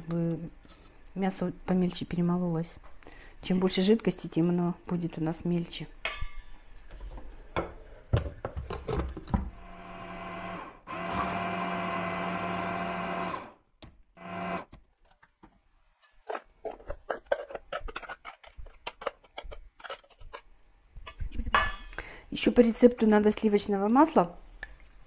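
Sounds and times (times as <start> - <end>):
hand blender motor grinding: 9.6 - 13.5, 14.2 - 14.7.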